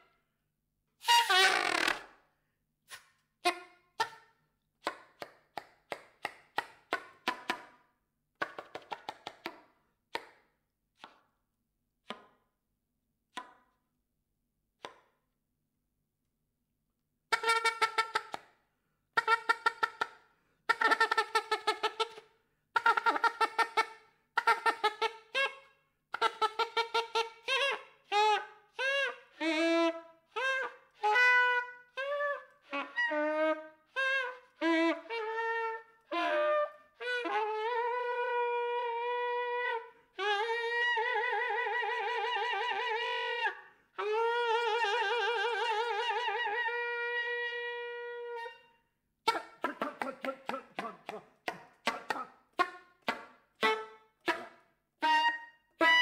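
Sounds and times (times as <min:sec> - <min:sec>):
soprano saxophone improvising: 0:51.9 - 0:56.0.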